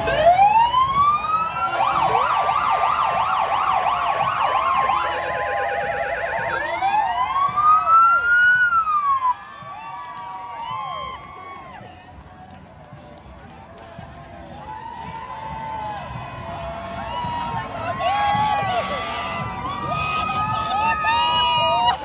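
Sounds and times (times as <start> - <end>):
emergency sirens wailing and yelping: 0.0 - 12.2, 13.6 - 22.0.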